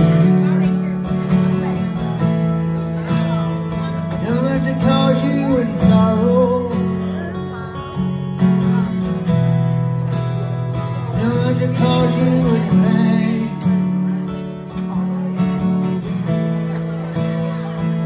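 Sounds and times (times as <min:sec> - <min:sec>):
acoustic guitar strumming chords: 0:00.0 - 0:18.0
man singing: 0:04.0 - 0:07.5, 0:11.0 - 0:14.0.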